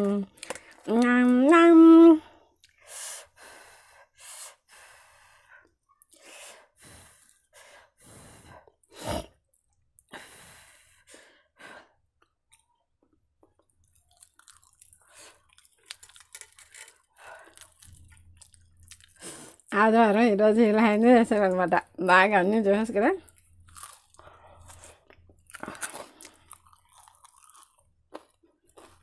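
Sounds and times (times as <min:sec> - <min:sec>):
person chewing food: 0:12.1 - 0:19.7, 0:23.2 - 0:29.0.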